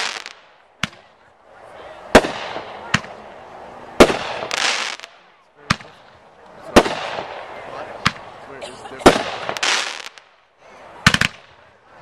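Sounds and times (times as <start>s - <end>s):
firework hissing: 0.0s - 0.4s, 4.0s - 5.1s, 9.1s - 10.2s
firework bangs: 0.0s - 1.2s, 2.1s - 3.2s, 4.0s - 8.3s, 9.0s - 10.4s, 11.0s - 11.6s.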